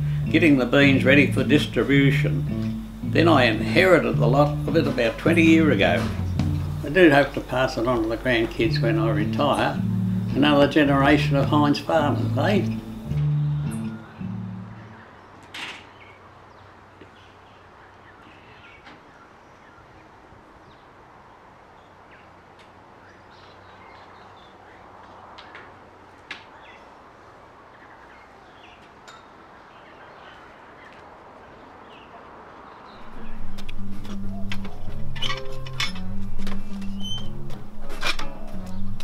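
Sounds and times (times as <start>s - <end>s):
background hush: 0.0s - 14.7s, 33.0s - 39.0s
faint bird chirps: 32.9s - 36.1s, 36.7s - 37.4s.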